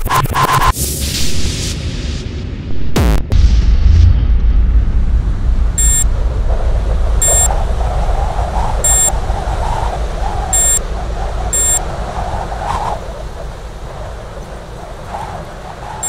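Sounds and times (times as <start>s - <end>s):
deep low rumble: 1.2s - 15.8s
short bright electronic beeps: 5.8s - 6.1s, 7.2s - 7.5s, 8.9s - 9.1s, 10.6s - 10.8s, 11.6s - 11.8s.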